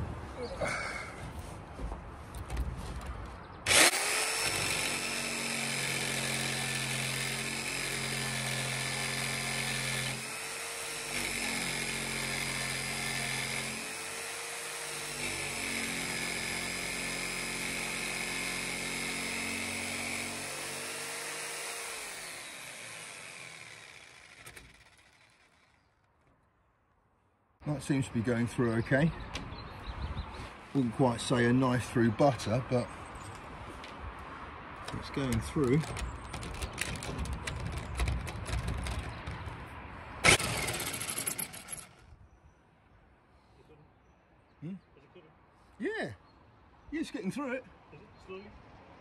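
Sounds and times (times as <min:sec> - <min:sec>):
jigsaw cutting through steel: 0:03.7 - 0:25.9, 0:40.2 - 0:42.0.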